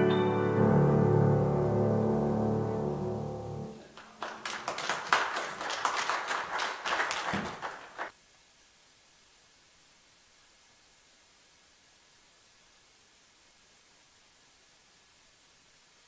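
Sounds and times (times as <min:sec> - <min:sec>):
grand piano chord: 0:00.0 - 0:03.9
congregation applauding: 0:03.8 - 0:08.1.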